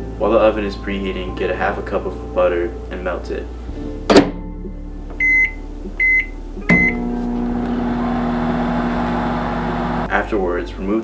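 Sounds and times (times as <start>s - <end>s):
microwave keypad beeps: 5.2s - 7.0s
microwave oven humming: 6.2s - 10.1s.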